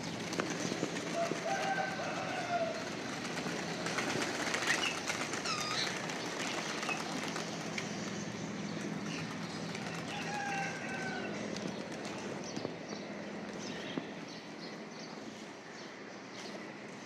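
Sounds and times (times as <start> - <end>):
pigeon wings flapping: 0.0 - 8.0, 8.8 - 12.6
city background noise: 0.0 - 17.0.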